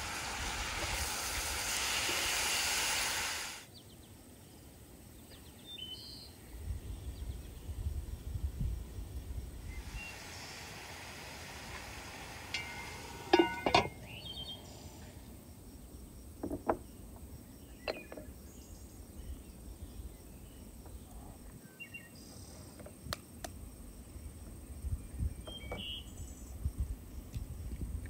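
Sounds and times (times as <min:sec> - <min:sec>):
faint outdoor background: 0:00.0 - 0:28.0.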